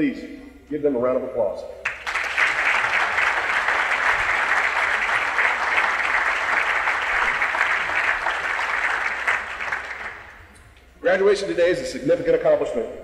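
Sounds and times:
large audience applauding: 1.8 - 10.5.

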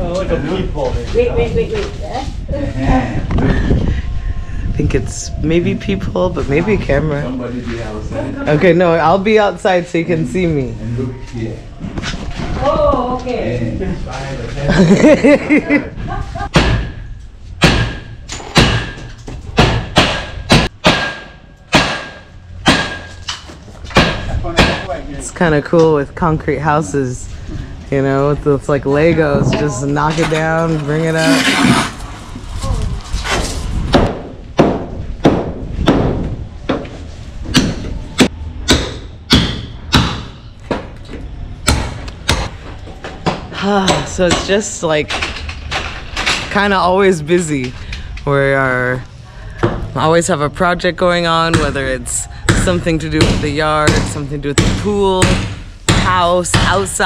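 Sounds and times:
hammer striking steel frame: 16.5 - 25.0, 37.5 - 40.9, 41.6 - 42.6.

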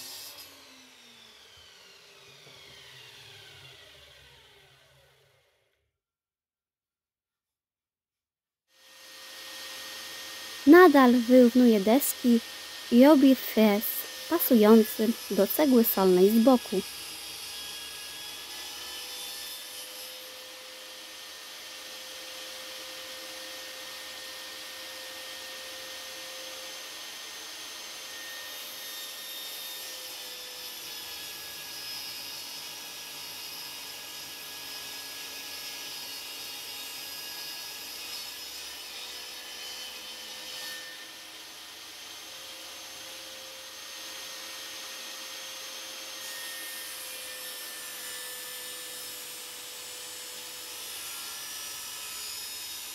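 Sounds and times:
table saw cutting wood: 0.0 - 5.5, 8.8 - 52.9.

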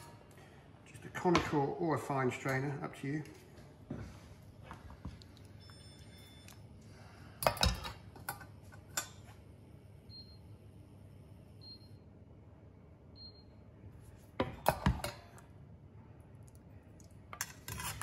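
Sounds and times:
kitchen appliance beeps: 5.6 - 6.6, 10.1 - 10.5, 11.6 - 12.0, 13.2 - 13.6.

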